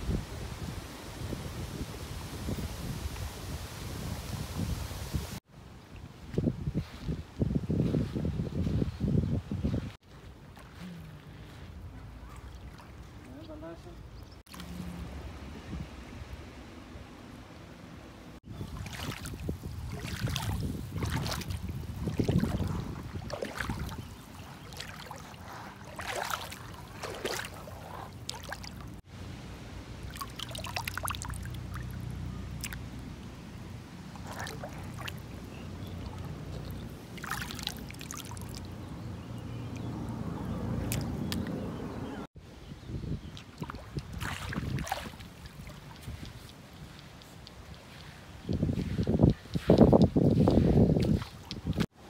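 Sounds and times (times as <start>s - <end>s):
wind rumble on microphone: 0.0s - 12.4s, 18.4s - 29.0s, 38.6s - 52.0s
water splashing on pebbles: 18.6s - 29.0s, 30.0s - 32.8s, 34.1s - 38.7s, 43.4s - 46.6s.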